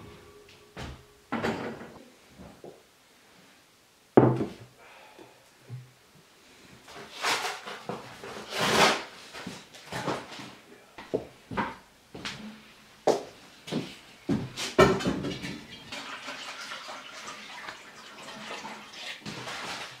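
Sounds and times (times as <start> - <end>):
dish set down on wooden table: 1.3 - 2.0.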